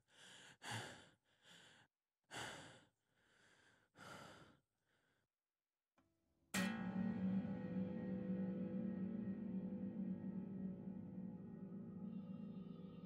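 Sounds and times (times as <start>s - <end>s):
man breathing hard: 0.0s - 5.2s
low gong-like tone: 6.6s - 13.0s.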